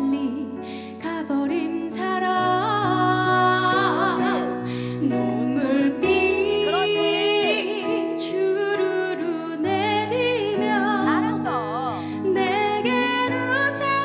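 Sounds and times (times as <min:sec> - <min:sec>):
electric keyboard chords: 0:02.6 - 0:14.0
woman singing with vibrato: 0:05.1 - 0:14.0.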